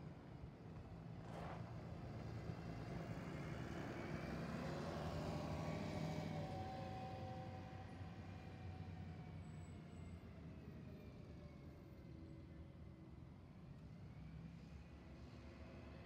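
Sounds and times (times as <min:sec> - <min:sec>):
bus diesel engine pulling away: 0:01.4 - 0:12.8.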